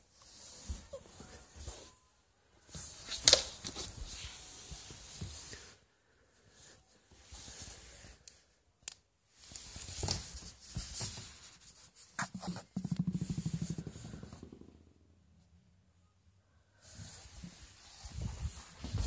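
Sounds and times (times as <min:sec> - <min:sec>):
scuffling and rubbing: 0:17.1 - 0:19.0.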